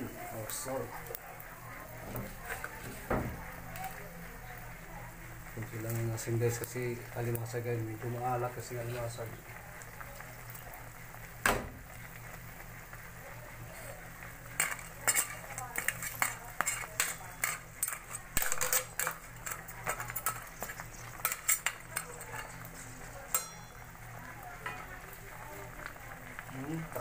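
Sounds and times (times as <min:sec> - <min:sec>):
utensil clinking against metal pot: 0:14.6 - 0:23.9.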